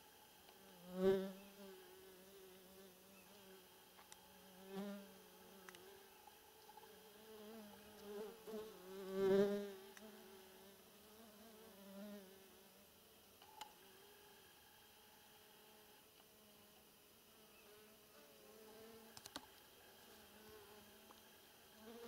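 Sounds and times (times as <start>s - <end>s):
flying insect buzzing: 0.5s - 12.8s, 17.4s - 22.0s.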